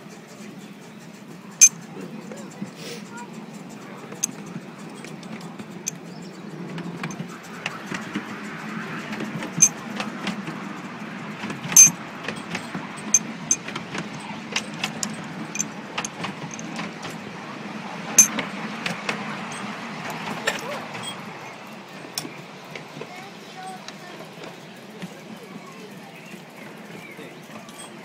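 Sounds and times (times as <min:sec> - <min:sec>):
miniature train rumbling on track: 0:00.0 - 0:28.0
metallic wheel clicks and clanks: 0:03.3 - 0:17.2, 0:18.2 - 0:21.2.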